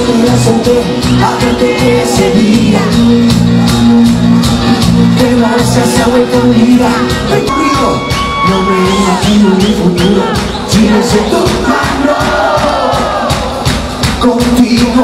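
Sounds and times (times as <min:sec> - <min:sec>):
live band playing with bass: 0:00.0 - 0:15.0
crowd shouting: 0:07.1 - 0:13.8.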